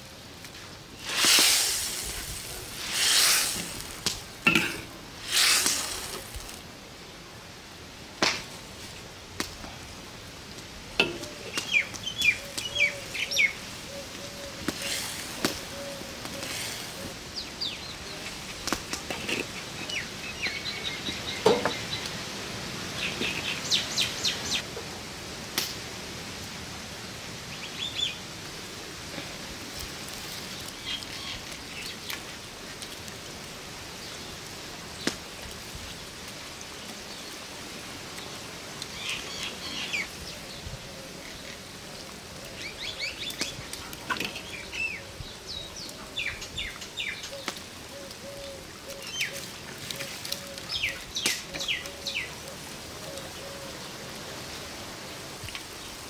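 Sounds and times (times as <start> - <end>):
small birds chirping: 11.3 - 22.2.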